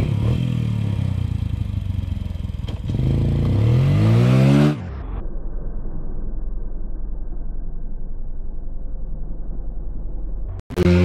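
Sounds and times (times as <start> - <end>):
quad bike engine revving: 0.0 - 1.9, 2.5 - 4.8, 10.7 - 11.0.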